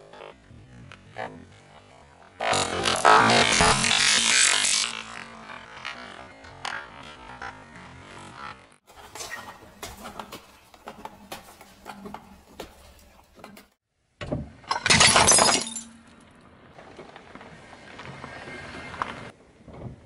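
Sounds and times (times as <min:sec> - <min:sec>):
objects crunching under car tyre: 0:08.8 - 0:13.8, 0:14.9 - 0:20.0
glass dish shattering: 0:14.7 - 0:16.2
glass pieces clinking: 0:14.7 - 0:16.2.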